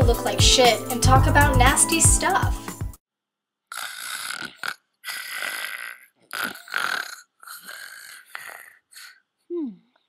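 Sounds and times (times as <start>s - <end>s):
woman snoring: 3.7s - 9.8s.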